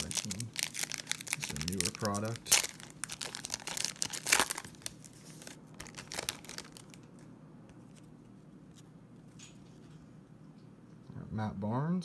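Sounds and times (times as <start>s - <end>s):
foil pack crinkling and tearing: 0.0s - 7.2s.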